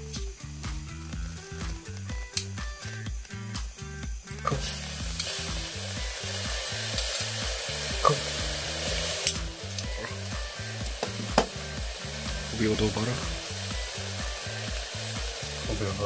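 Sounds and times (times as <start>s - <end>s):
butter bubbling and sizzling: 0.5s - 16.0s
sharp pops: 10.8s - 11.6s.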